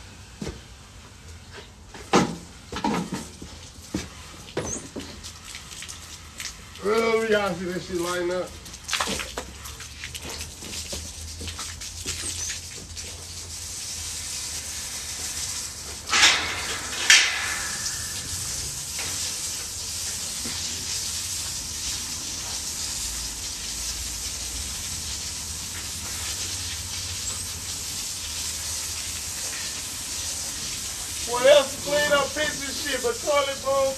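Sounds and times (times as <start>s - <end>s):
hose spraying water: 0.0s - 33.9s
loud knocks: 16.1s - 19.4s.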